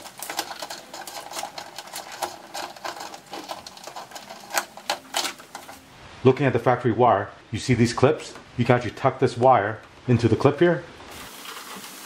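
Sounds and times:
small clicks and rustles of wire: 0.0 - 5.8.

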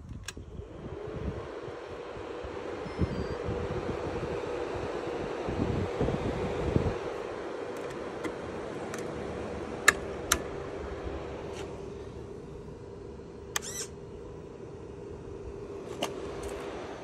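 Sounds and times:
lawnmower machinery hum: 0.0 - 17.0
warbling chirp: 2.8 - 3.4.

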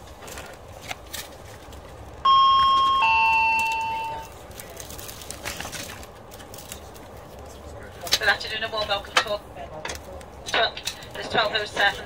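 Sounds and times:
plastic wrapper crinkling: 3.6 - 7.4.

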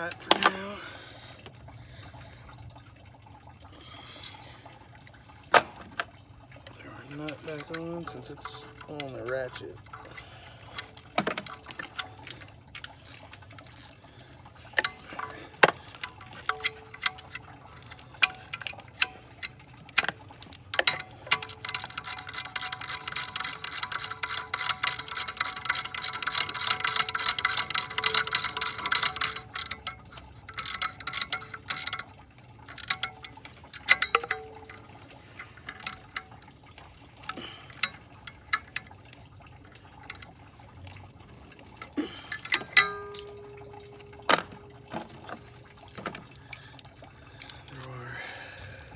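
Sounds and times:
ratchet clicking: 12.8 - 14.0, 20.8 - 32.1, 32.7 - 34.7, 47.4 - 48.9.

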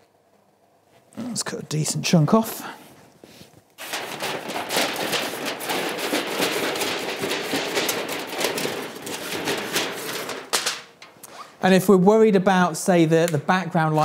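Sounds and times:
aluminium foil crinkling: 3.7 - 11.3.

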